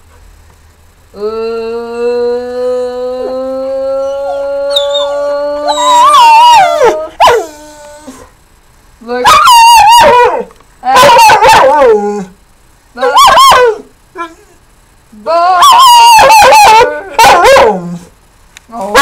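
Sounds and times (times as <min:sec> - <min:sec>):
dog howling: 0:01.9 - 0:08.2, 0:09.2 - 0:12.3, 0:13.0 - 0:13.8, 0:15.3 - 0:18.0
dog yelp: 0:11.0 - 0:11.9, 0:13.0 - 0:13.8, 0:15.6 - 0:17.7.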